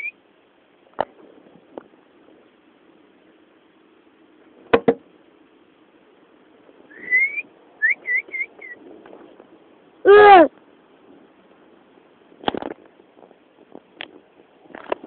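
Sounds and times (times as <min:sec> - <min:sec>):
person whistling: 0:06.9 - 0:08.8.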